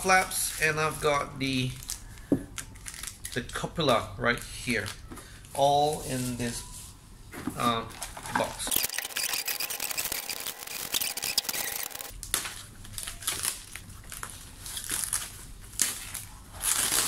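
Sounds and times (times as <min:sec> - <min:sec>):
bubble wrap crackling: 0:09.7 - 0:17.0.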